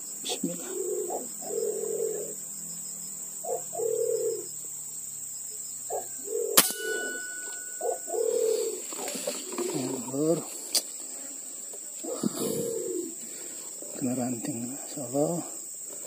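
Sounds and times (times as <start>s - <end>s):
pigeons cooing: 0.0s - 4.7s, 5.9s - 10.7s, 11.6s - 16.0s
air rifle shot: 6.6s - 7.1s
thin ringing tone: 6.6s - 8.6s.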